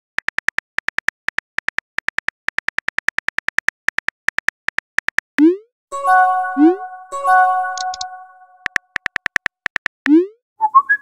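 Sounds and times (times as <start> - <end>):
phone keyboard clicks: 7.8 - 10.0.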